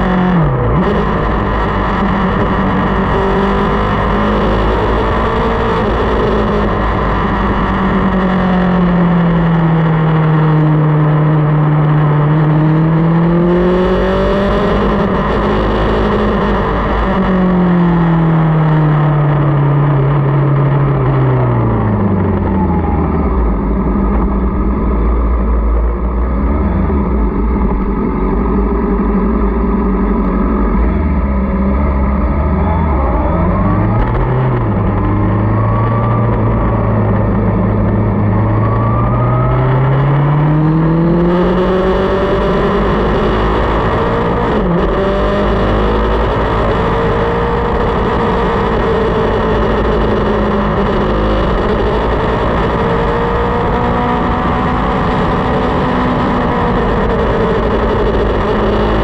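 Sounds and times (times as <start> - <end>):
motorcycle engine: 0.0 - 59.0
road and wind noise: 0.0 - 59.0.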